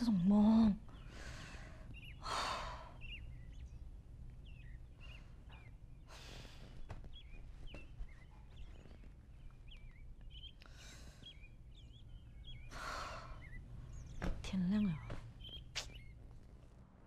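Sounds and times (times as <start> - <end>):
short bird chirps: 15.4 - 16.2.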